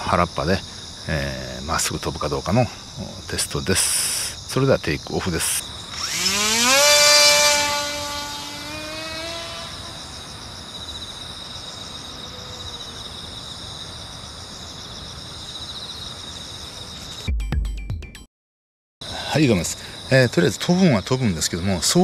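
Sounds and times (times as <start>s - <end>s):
insects chirring: 0.0s - 17.3s, 19.0s - 22.0s
model plane motor whining: 5.9s - 10.2s.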